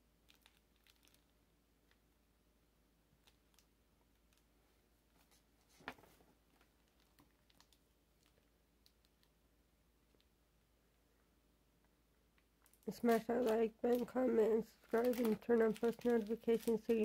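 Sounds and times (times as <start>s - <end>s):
faint small clicks: 6.9s - 9.3s.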